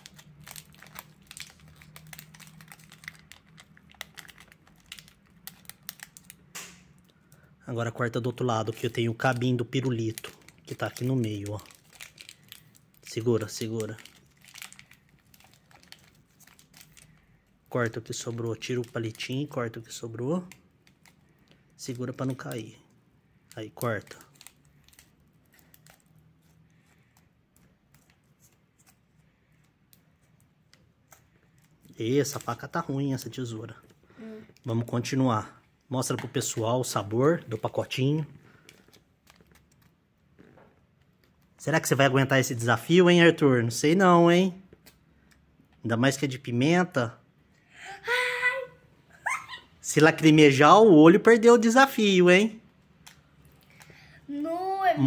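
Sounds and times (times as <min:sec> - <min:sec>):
plastic wrapper crinkling: 0:00.0 - 0:07.4, 0:08.2 - 0:34.0, 0:36.4 - 0:41.6, 0:52.9 - 0:54.1.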